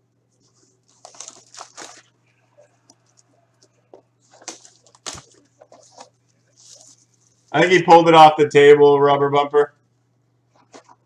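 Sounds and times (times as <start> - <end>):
faint steady hum: 0.0 - 11.0
packaging rustling and crinkling: 0.4 - 7.5.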